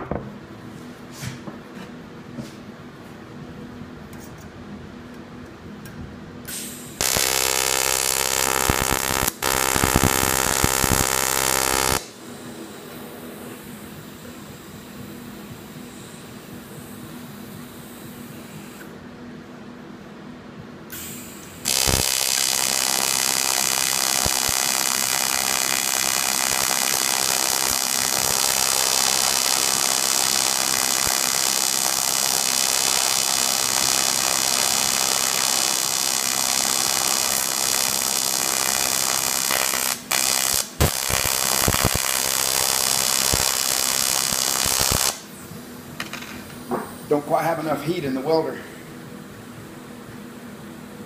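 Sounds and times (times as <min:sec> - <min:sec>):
welding arc buzzing: 0:06.5 - 0:13.3, 0:21.0 - 0:45.4.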